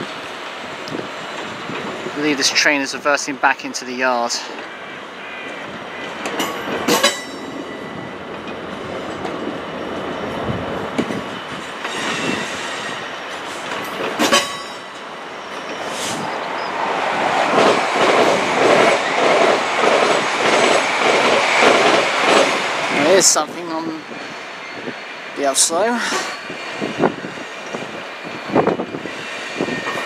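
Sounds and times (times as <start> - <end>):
train moving slowly on rails: 0.0 - 30.0
train wheel squeals: 4.6 - 8.2, 11.0 - 16.8, 21.5 - 30.0
wheels clattering over rail joints: 6.0 - 16.3.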